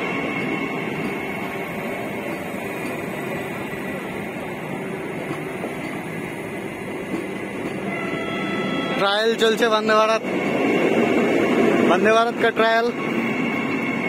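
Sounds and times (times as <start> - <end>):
train wheels on rails: 0.0 - 14.0.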